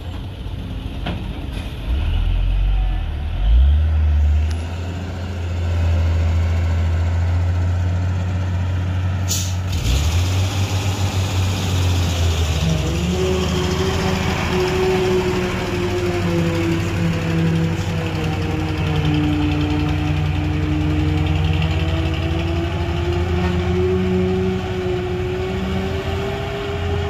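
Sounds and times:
diesel truck engine drone: 0:00.0 - 0:27.0
air brake hiss: 0:09.3 - 0:09.7.

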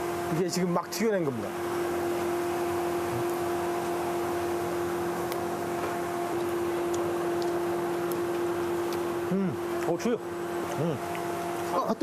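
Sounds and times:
kitchen frying hum and hiss: 0:00.0 - 0:12.0
crisp chewing ticks: 0:06.4 - 0:09.0.

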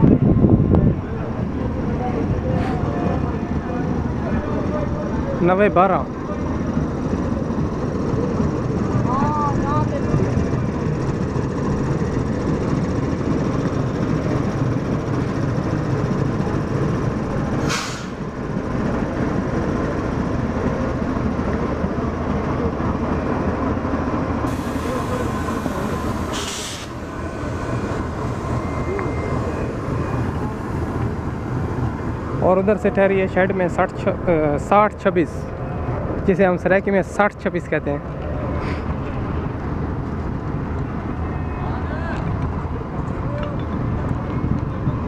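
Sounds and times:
diesel locomotive engine rumbling: 0:00.0 - 0:45.0
short hissing bursts: 0:24.5 - 0:27.0.

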